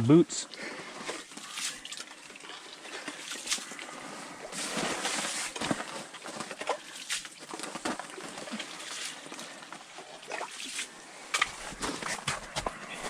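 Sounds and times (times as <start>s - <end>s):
ice scoop scraping slush: 3.4s - 9.6s.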